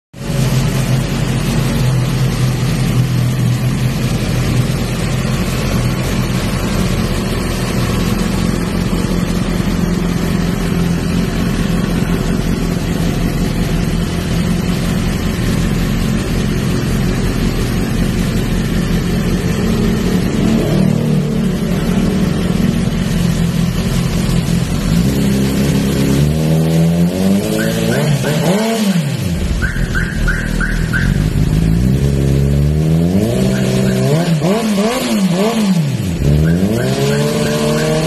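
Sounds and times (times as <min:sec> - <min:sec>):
motorcycle engine idling: 0:00.2 - 0:25.9, 0:29.2 - 0:32.6.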